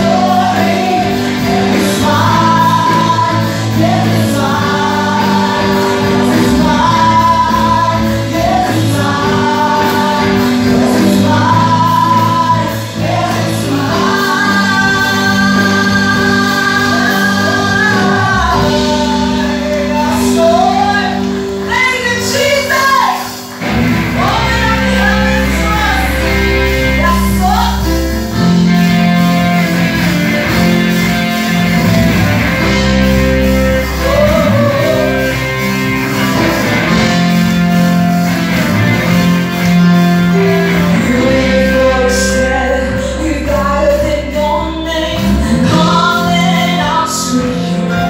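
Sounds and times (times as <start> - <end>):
women singing together: 0.0 - 23.3, 34.0 - 35.6
band with drums: 0.0 - 44.4
sustained low bass notes: 23.6 - 48.0.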